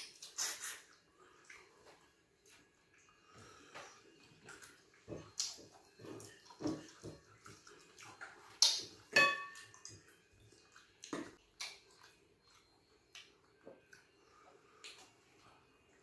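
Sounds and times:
dish clinking: 9.1 - 9.7.

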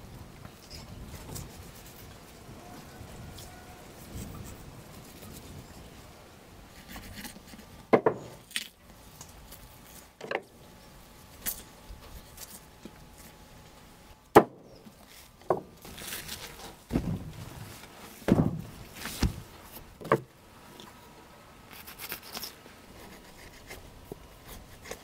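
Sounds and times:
knife cutting and scraping meat: 21.7 - 23.8.

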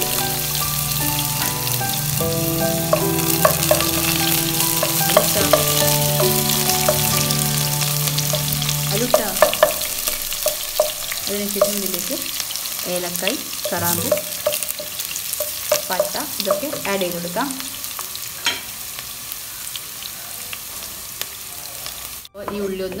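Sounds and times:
onions sizzling in oil: 0.0 - 22.3
wooden spatula scraping pot: 1.0 - 12.8, 13.6 - 17.0.

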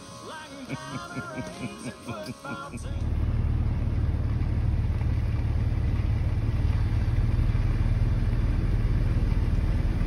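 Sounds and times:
car engine rumble from inside: 2.7 - 10.0.

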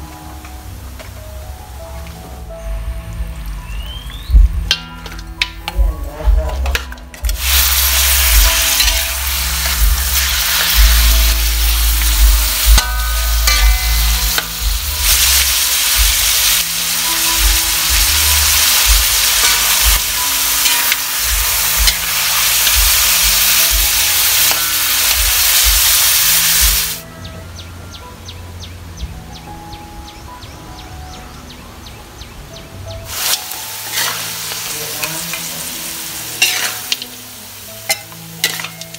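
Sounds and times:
chicken sizzling in hot oil: 6.7 - 27.0, 33.1 - 38.9
metal spoon clinking on pan: 12.7 - 14.6, 19.4 - 22.5, 24.4 - 25.2, 36.4 - 37.1, 37.9 - 38.9.

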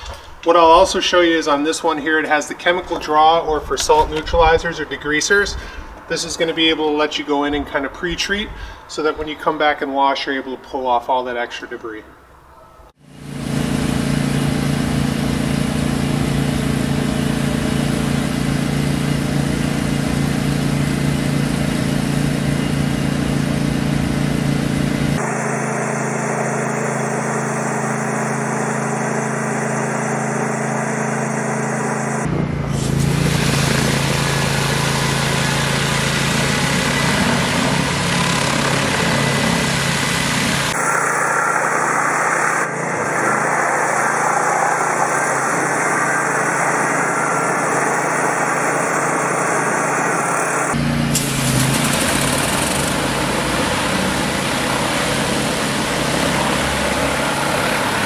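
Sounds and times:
pressure washer engine hum: 13.0 - 58.0
high-pressure water hissing: 32.7 - 58.0.

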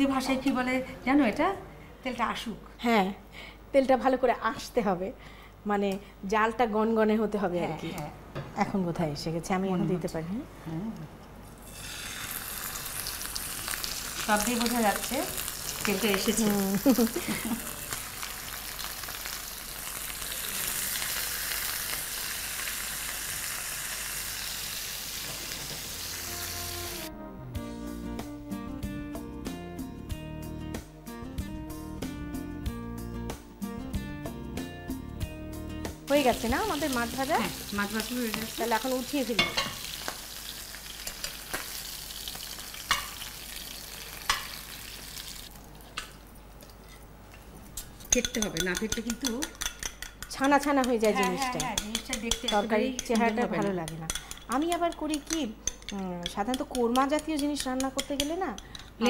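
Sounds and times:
fish sizzling in hot oil: 11.6 - 27.1, 36.1 - 45.6
music: 25.7 - 39.3.

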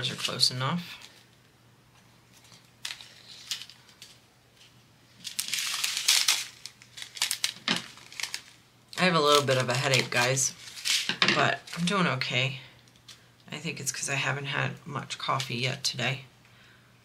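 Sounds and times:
plastic bags crinkling: 2.3 - 12.2.

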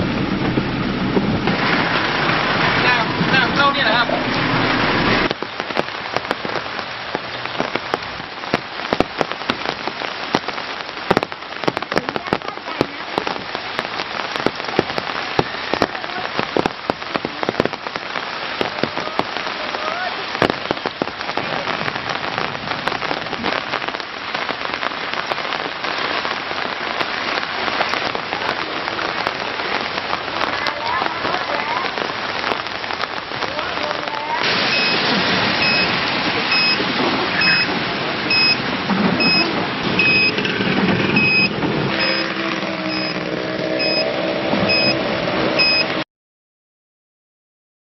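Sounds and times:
rain falling: 0.0 - 46.0
raindrops tapping: 0.0 - 46.0
loud rush: 33.2 - 46.0.

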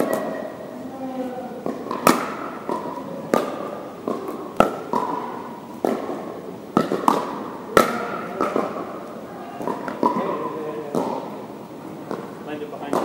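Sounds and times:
paddles striking plastic ball: 1.6 - 9.0, 9.6 - 11.4, 12.1 - 13.0.

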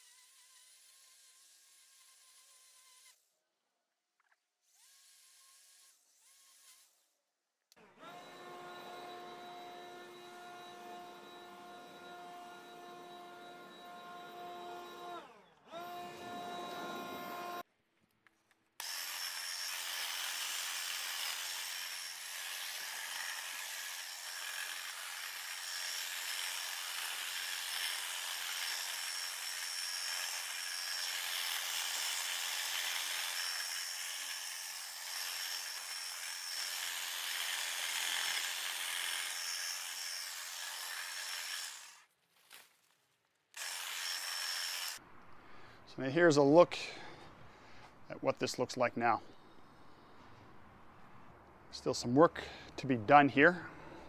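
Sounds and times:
hedge trimmer cutting hedge: 7.8 - 17.6, 18.8 - 42.7, 43.6 - 45.0
leaf blower whine: 7.8 - 17.6.

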